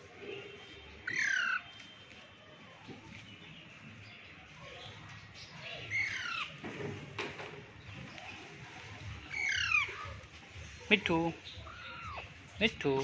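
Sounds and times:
parakeet screeching: 1.0s - 1.6s, 5.9s - 6.5s, 9.3s - 10.1s, 11.5s - 12.4s.

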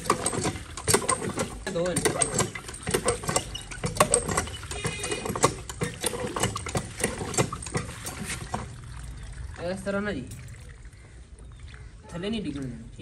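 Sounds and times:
carrots clattering in a metal bowl: 0.0s - 8.8s
water splashing: 0.0s - 12.8s.

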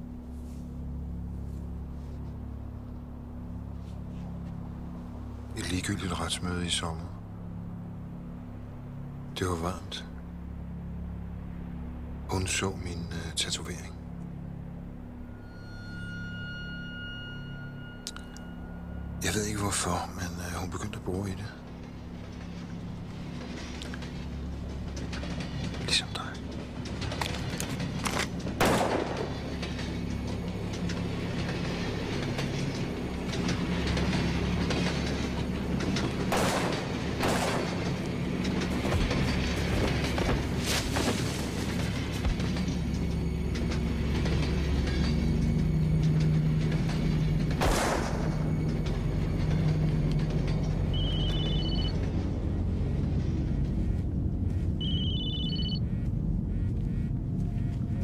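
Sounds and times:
low droning film score: 0.0s - 58.0s
low steady rumble: 0.0s - 58.0s
phone ringtone beeping: 50.9s - 52.0s, 54.8s - 56.0s.

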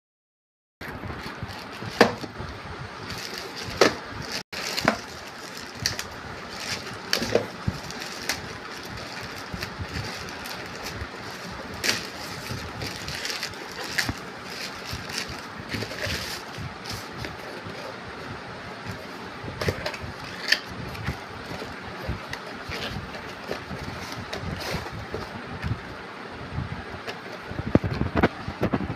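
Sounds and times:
plastic bag crinkling and tearing: 3.0s - 17.4s.

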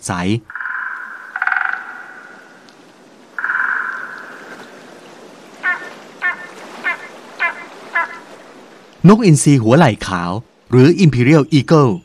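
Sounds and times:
eagle calling: 0.4s - 2.8s, 3.4s - 4.9s, 5.6s - 8.4s.

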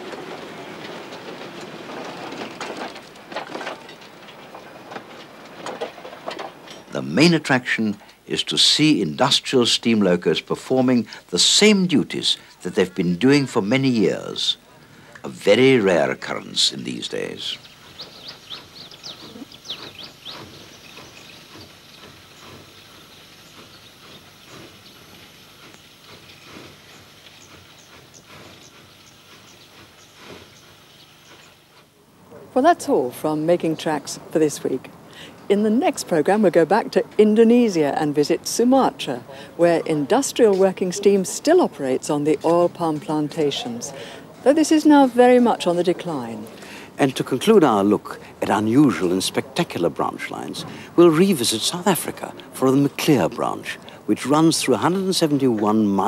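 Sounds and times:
faint steady hiss: 0.0s - 56.0s
wagons rumbling on track: 0.0s - 56.0s
wheels clanking and rattling: 0.0s - 56.0s
birds chirping: 12.3s - 31.8s.

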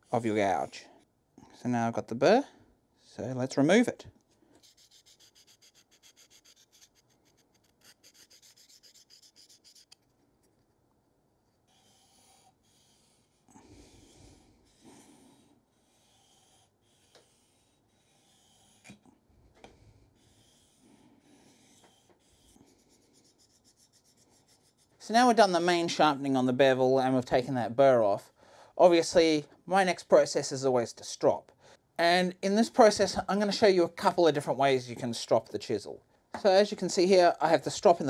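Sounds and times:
gouge scraping on waterstone: 4.6s - 10.0s.

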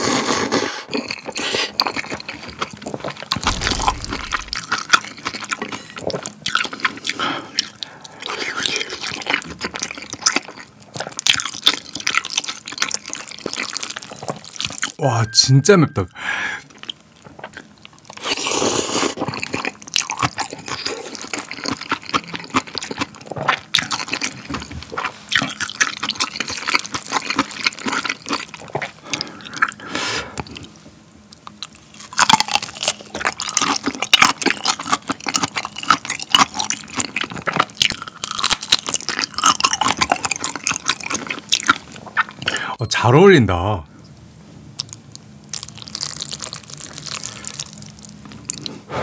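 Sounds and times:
wet clicky chewing: 3.4s - 4.7s
slurping noodles: 18.2s - 19.4s, 48.5s - 49.0s.

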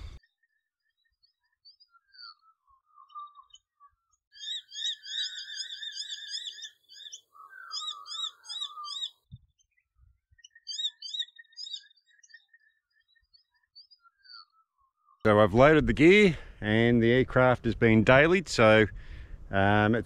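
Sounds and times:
animal chirping: 4.4s - 9.2s, 10.4s - 12.5s.

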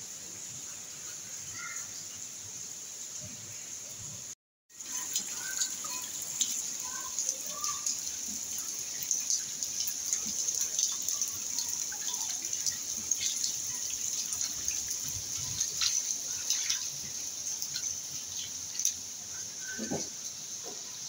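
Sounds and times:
rain falling: 0.0s - 21.0s
water dripping and splashing: 4.7s - 21.0s.

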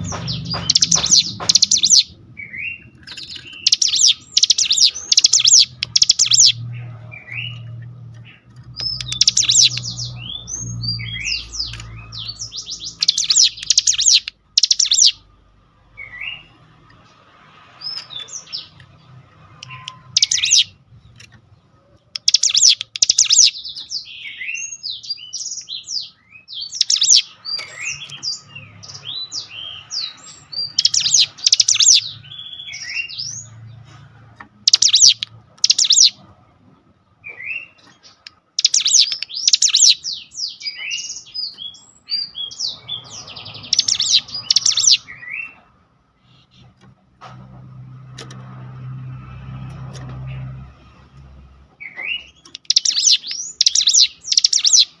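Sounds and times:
bird chattering bursts: 0.0s - 6.6s, 8.8s - 15.2s, 19.6s - 20.8s, 22.1s - 23.8s, 26.6s - 28.1s, 28.9s - 33.3s, 34.6s - 36.2s, 38.6s - 41.3s, 42.2s - 45.1s, 52.5s - 55.0s
bird chirps and whistled notes: 0.0s - 7.7s, 8.3s - 15.2s, 19.6s - 20.8s, 22.2s - 33.5s, 34.7s - 36.2s, 37.2s - 45.6s, 51.8s - 55.0s.

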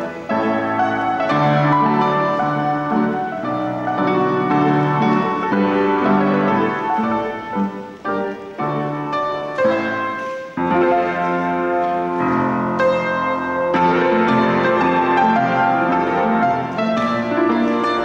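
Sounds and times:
piano-led country dance music: 0.0s - 18.0s.

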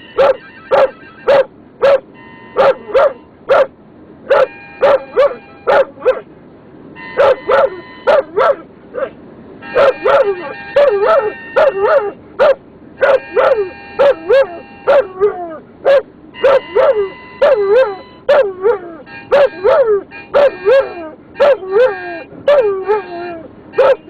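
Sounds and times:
harmonica chords: 0.0s - 1.5s, 2.1s - 3.3s, 4.3s - 5.8s, 7.0s - 8.4s, 9.6s - 12.2s, 13.0s - 15.2s, 16.3s - 24.0s
dog yipping: 0.0s - 3.7s, 4.3s - 6.3s, 7.2s - 24.0s.

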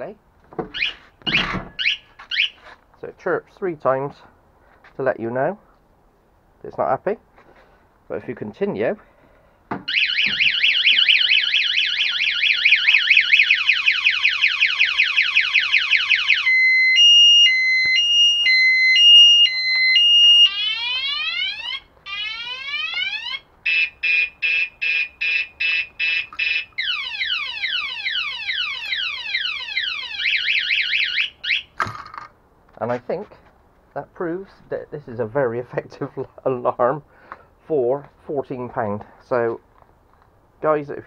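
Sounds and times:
alarm warning chirps: 0.7s - 2.6s, 9.9s - 31.7s
scooter alarm siren: 0.7s - 2.6s, 9.8s - 31.7s.

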